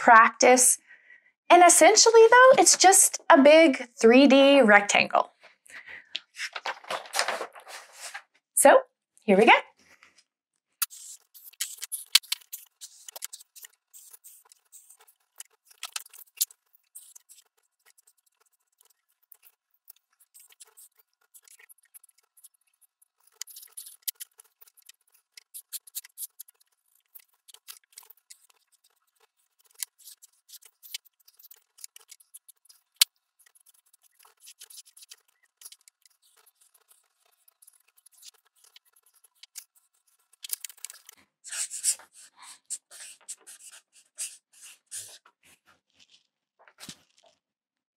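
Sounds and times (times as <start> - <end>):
marker scratching on paper: 10.8 - 22.6, 23.2 - 45.6.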